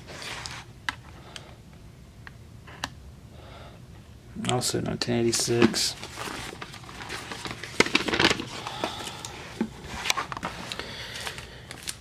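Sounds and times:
paper and wrappers crinkling: 0:05.3 - 0:12.0.

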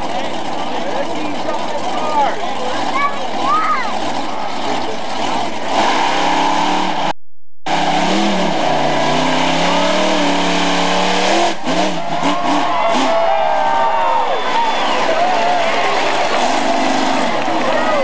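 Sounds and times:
monster truck engine revving: 0:00.0 - 0:18.0.

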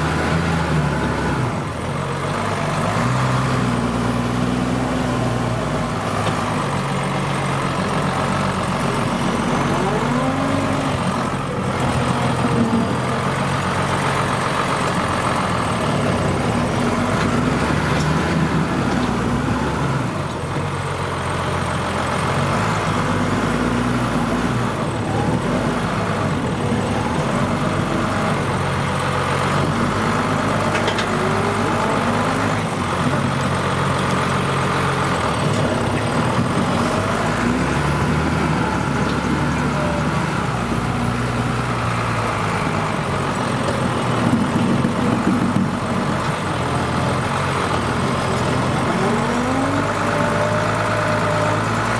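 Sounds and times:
tractor diesel engine running: 0:00.0 - 0:51.9.

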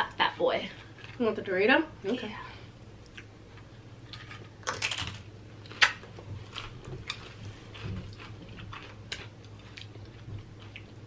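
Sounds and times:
chips crunching while chewed: 0:04.1 - 0:11.0.

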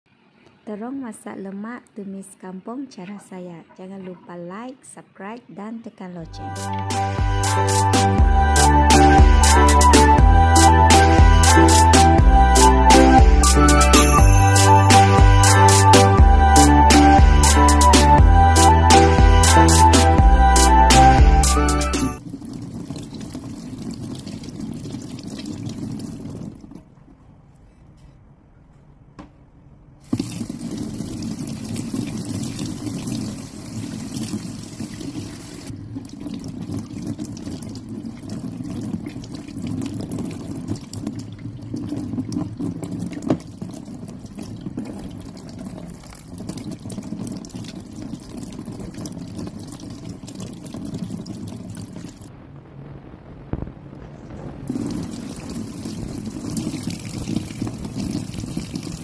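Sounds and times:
tap water running into steel sink: 0:30.0 - 0:52.2, 0:54.7 - 0:59.0.

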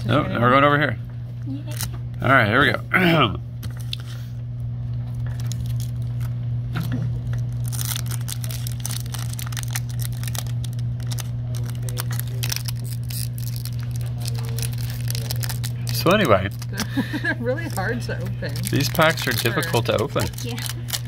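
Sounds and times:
low hum: 0:00.0 - 0:21.0
foil wrapper crinkling and tearing: 0:01.6 - 0:01.9, 0:05.2 - 0:21.0.

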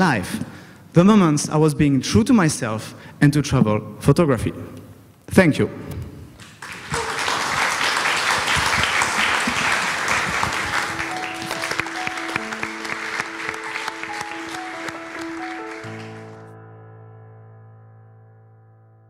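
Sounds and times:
audience applauding: 0:06.4 - 0:16.4
soft music with held notes: 0:10.2 - 0:19.0.

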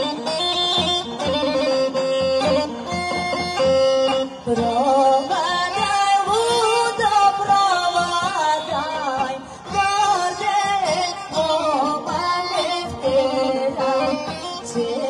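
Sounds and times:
bagpipes: 0:00.0 - 0:15.0
woman singing folk song: 0:04.4 - 0:15.0.

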